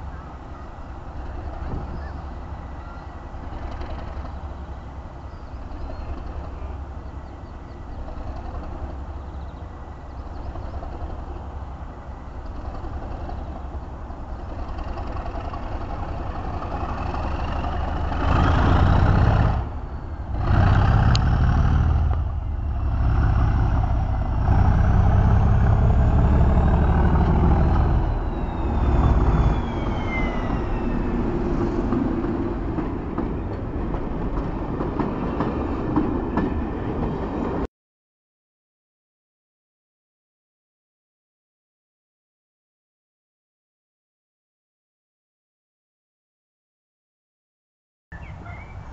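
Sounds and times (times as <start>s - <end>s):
diesel locomotive engine passing: 0.0s - 37.7s
train coaches rolling past: 0.0s - 37.7s.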